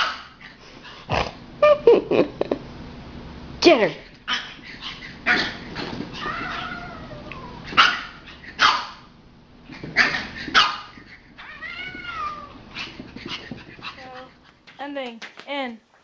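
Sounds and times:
dog barking: 7.7 - 9.1, 10.0 - 11.0.

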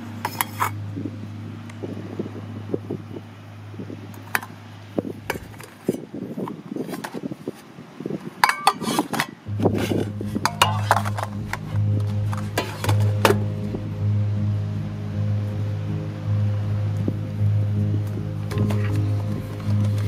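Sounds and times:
soft music with low bass: 0.0 - 5.6, 9.5 - 20.0
metal dishes clinking: 8.4 - 11.6.

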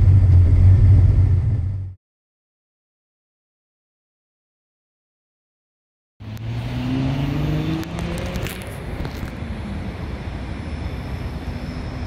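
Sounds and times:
car engine accelerating: 6.2 - 9.4
open-air background noise: 6.2 - 12.0.

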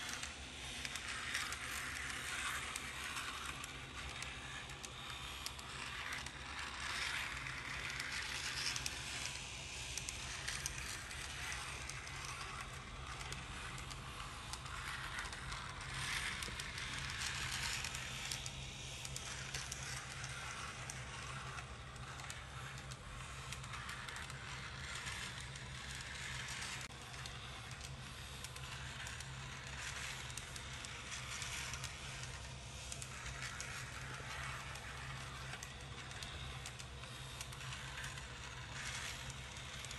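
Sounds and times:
model tram rattling whir: 0.0 - 39.9.

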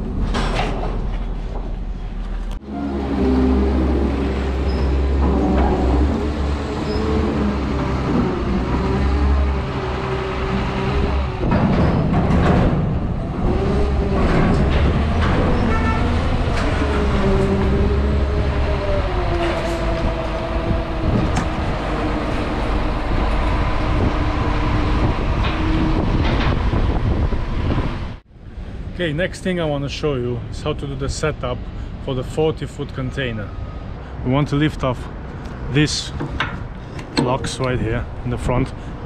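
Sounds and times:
forklift diesel engine and hydraulics: 0.0 - 39.0
metal knocks: 11.3 - 13.2, 36.2 - 37.8.

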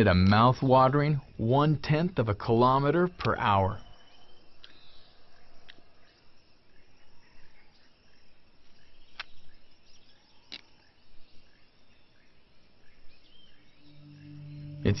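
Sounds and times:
insects buzzing: 2.7 - 15.0
bird chirps: 3.0 - 15.0.

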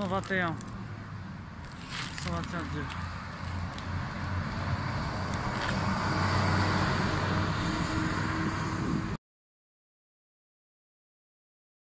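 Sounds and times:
street traffic: 0.0 - 9.2
bus engine driving past: 2.4 - 9.2.

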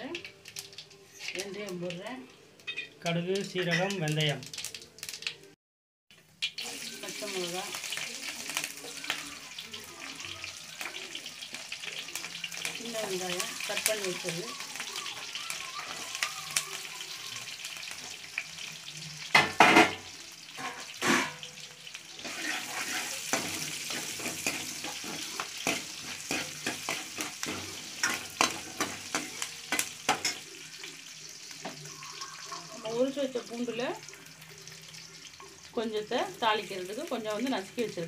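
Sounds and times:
oil sizzling in a pan: 0.0 - 38.0
ladle scraping a pan: 20.6 - 21.5, 22.2 - 30.5.

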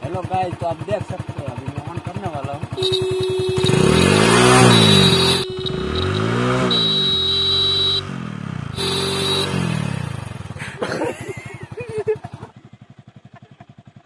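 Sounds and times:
motorcycle engine revving: 0.1 - 14.0
electric horn steady tone: 2.7 - 10.3.

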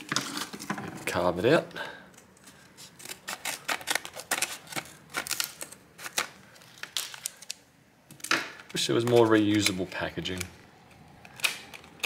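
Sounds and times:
scissors cutting plastic packaging: 2.4 - 7.6, 8.2 - 10.6, 11.2 - 12.0.

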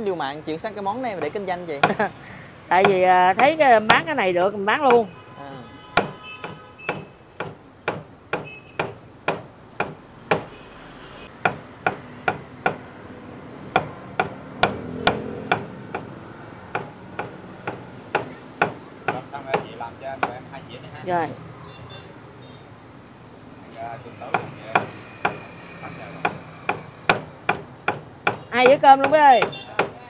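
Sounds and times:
cleaver chopping on wooden board: 1.2 - 2.1, 6.0 - 10.5, 13.7 - 16.1, 16.8 - 20.4, 24.3 - 25.5, 26.2 - 30.0.

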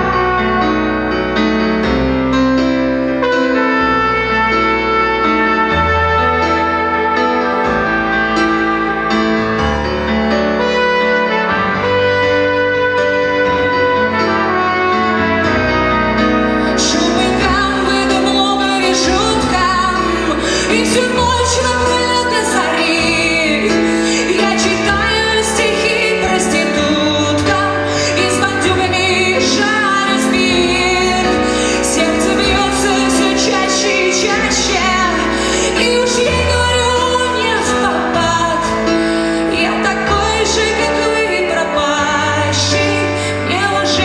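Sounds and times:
woman singing: 16.6 - 44.0.

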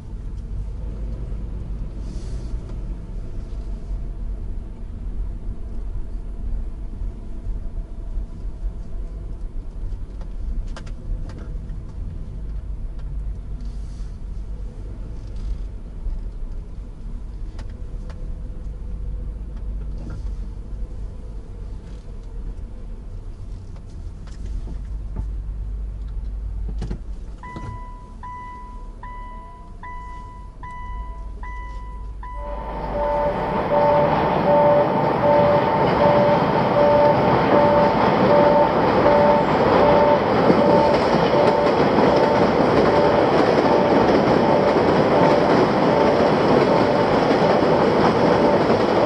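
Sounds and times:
high electronic beeps: 30.7 - 45.5.

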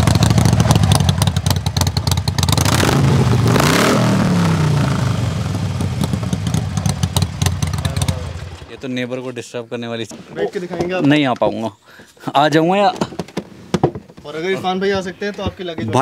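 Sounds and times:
motorcycle engine revving: 0.0 - 9.2.

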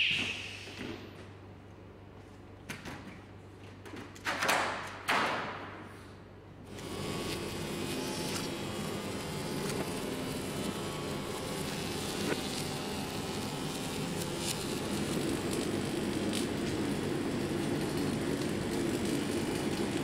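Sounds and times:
welding machine hum and buzz: 6.6 - 20.0.

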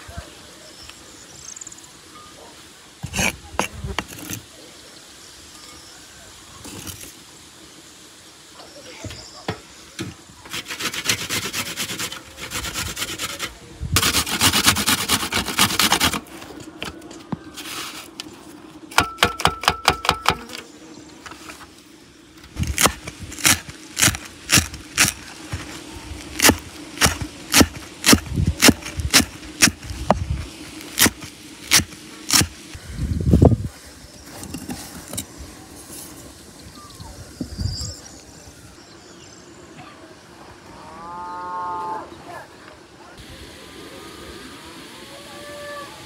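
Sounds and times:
knife chopping on wooden board: 26.4 - 29.8
garlic rasping on metal grater: 26.4 - 29.9, 31.0 - 32.5.

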